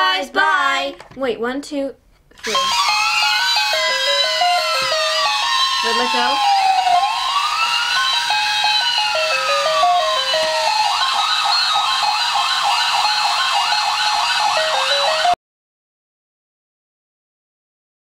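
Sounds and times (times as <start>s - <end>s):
electronic toy siren: 2.4s - 15.4s
stepped electronic jingle: 2.4s - 15.4s.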